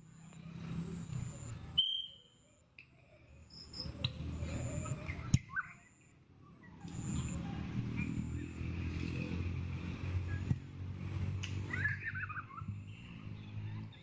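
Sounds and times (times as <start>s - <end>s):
whistle blast: 1.8s - 2.4s.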